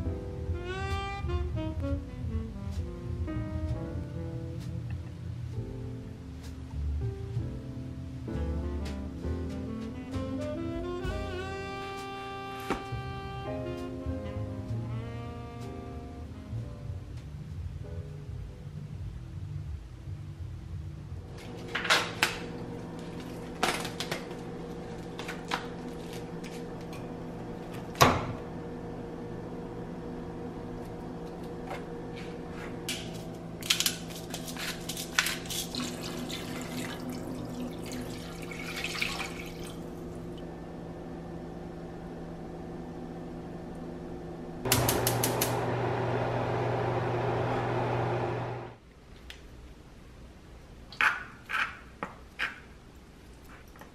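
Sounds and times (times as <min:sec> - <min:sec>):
spice grinder grinding: 0:21.4 - 0:27.2, 0:32.2 - 0:36.3.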